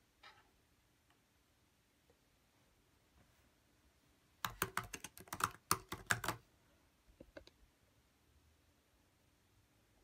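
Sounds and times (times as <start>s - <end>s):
laptop keyboard typing: 4.4s - 6.4s.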